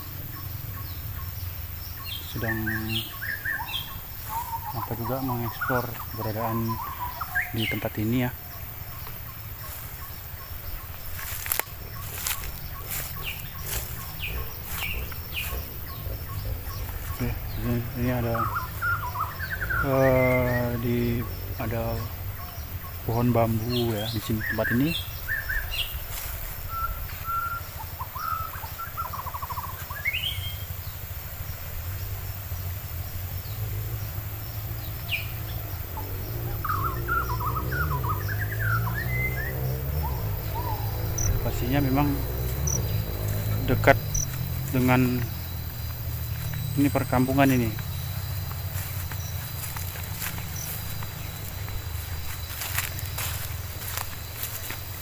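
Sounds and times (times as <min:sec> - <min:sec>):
steady low rumble: 0:00.0 - 0:23.8
wild birds chirping: 0:00.0 - 0:55.0
footsteps on leafy path: 0:02.1 - 0:30.3, 0:35.5 - 0:55.0.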